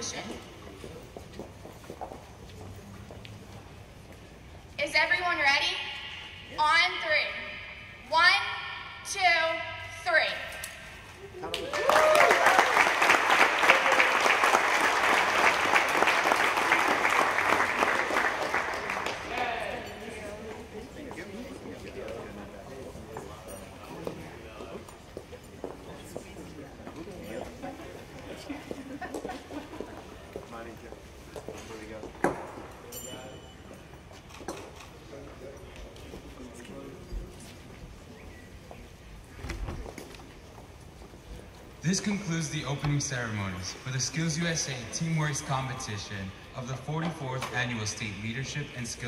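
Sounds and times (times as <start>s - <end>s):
crowd applauding: 11.4s - 19.8s.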